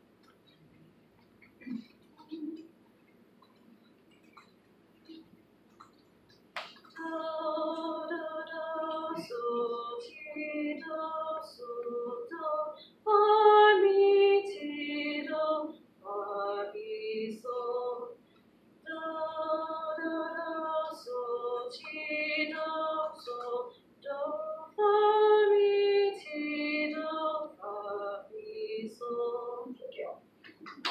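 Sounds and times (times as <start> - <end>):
woman singing a hymn: 6.9 - 18.2, 18.9 - 30.2.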